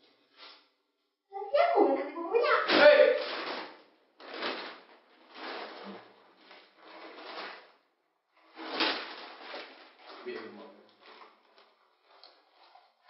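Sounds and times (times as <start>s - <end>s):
plastic packets crinkling: 2.7s - 7.7s, 8.5s - 12.2s.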